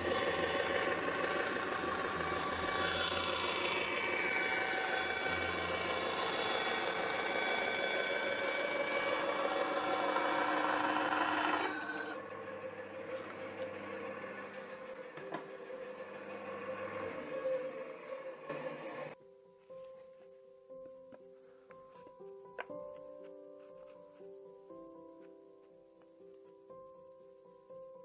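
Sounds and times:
band saw cutting wood: 0:00.0 - 0:19.2
saw motor running: 0:00.0 - 0:19.2.

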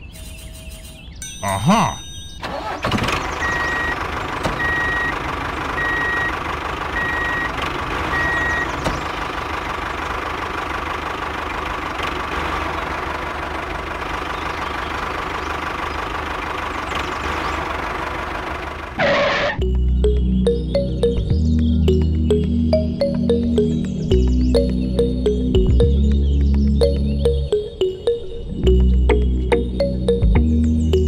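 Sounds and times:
short beeps: 0:01.2 - 0:02.4
tractor engine running: 0:02.4 - 0:31.0.

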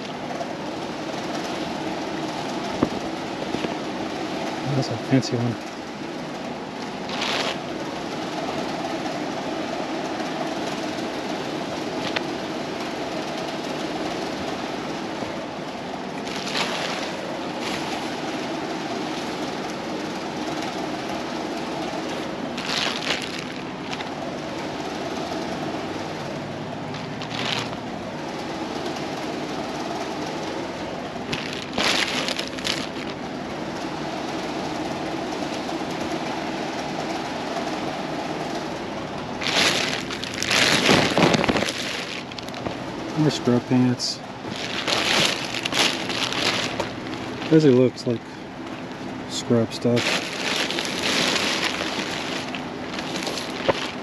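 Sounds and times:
steady background hum: 0:00.0 - 0:54.0
clothing and plastic bag rustling: 0:02.4 - 0:03.8, 0:07.0 - 0:07.7, 0:12.0 - 0:12.4, 0:16.2 - 0:20.7, 0:21.7 - 0:24.8, 0:26.8 - 0:27.9, 0:31.3 - 0:33.2, 0:39.4 - 0:49.0, 0:49.8 - 0:54.0.

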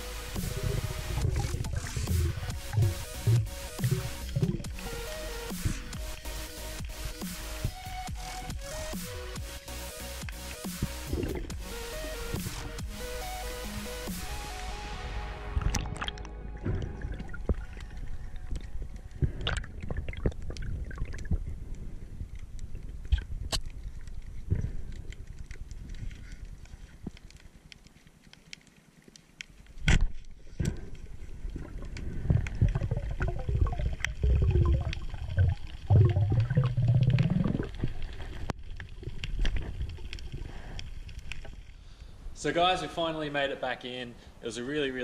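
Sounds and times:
underwater gurgling and bubbling: 0:00.0 - 0:09.6, 0:10.8 - 0:14.0, 0:15.5 - 0:25.4, 0:30.5 - 0:40.8.

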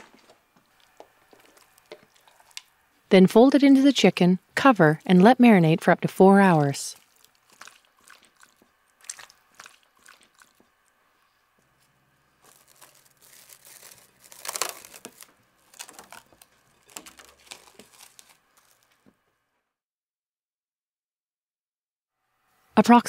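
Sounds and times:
plastic cling wrap crinkling: 0:00.0 - 0:02.7, 0:06.9 - 0:10.7, 0:12.4 - 0:19.0.

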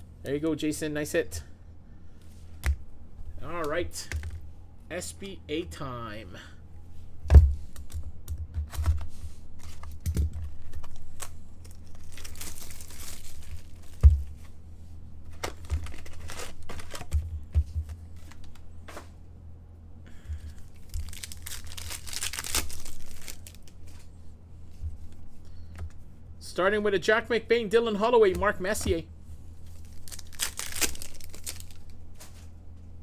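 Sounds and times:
card wrappers crinkling: 0:09.6 - 0:14.1, 0:15.3 - 0:17.2, 0:20.5 - 0:24.0, 0:29.6 - 0:32.0.

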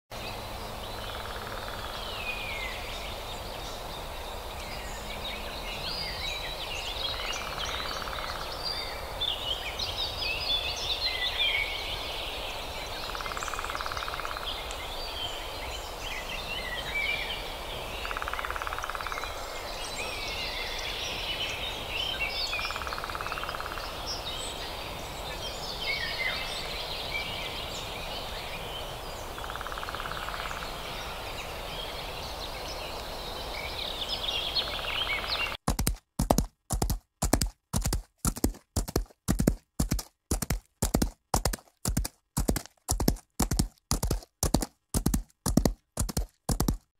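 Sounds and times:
songbirds chirping: 0:00.1 - 0:46.8
woodpecker drumming: 0:35.7 - 0:46.9.

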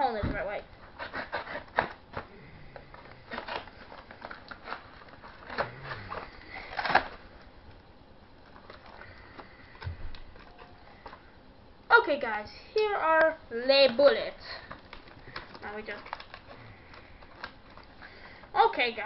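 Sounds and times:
knife cutting packaging: 0:01.0 - 0:07.3
packaging rustling: 0:01.2 - 0:11.4, 0:13.8 - 0:18.5.

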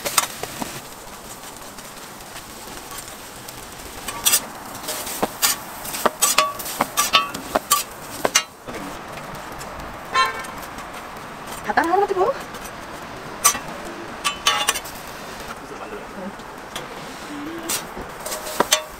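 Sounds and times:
steady hiss: 0:00.0 - 0:18.9
metal spatula clanking on griddle: 0:04.1 - 0:08.6, 0:13.4 - 0:14.9, 0:17.7 - 0:18.9.

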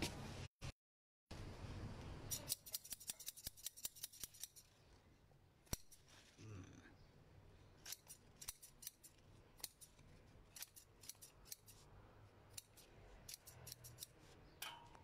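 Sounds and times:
scissors snipping stems: 0:07.8 - 0:11.8, 0:12.5 - 0:14.8.

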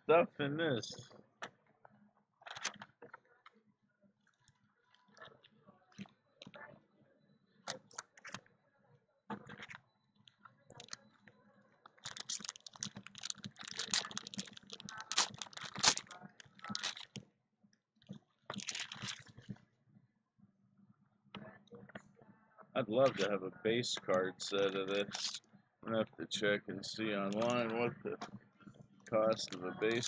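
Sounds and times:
cards clicking and rustling: 0:12.0 - 0:17.2, 0:18.5 - 0:19.3, 0:24.5 - 0:25.4.

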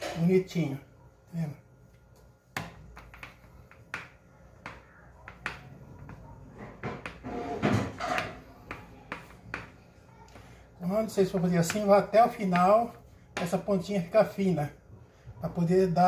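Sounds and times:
rolling pin knocking on stone: 0:02.6 - 0:09.8.

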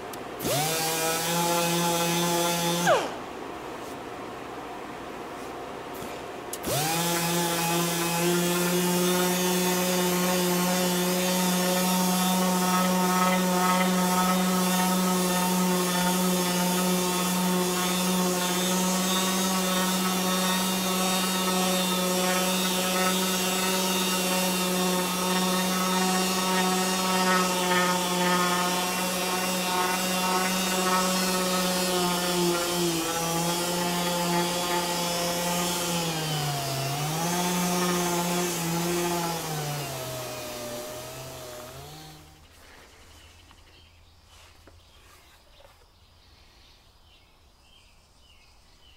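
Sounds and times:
orbital sander whining on wood: 0:00.4 - 0:03.2, 0:06.6 - 0:42.6.

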